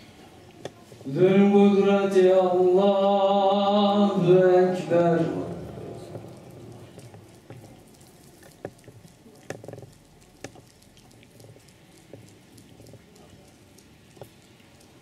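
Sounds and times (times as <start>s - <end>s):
echo of recitation: 1.0s - 7.0s
light clicks and taps: 6.1s - 15.0s.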